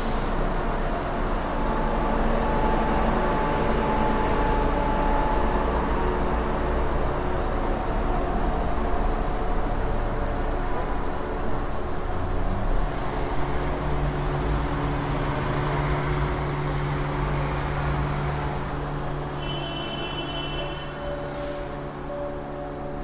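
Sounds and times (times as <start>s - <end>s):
traffic noise: 0.0s - 23.0s.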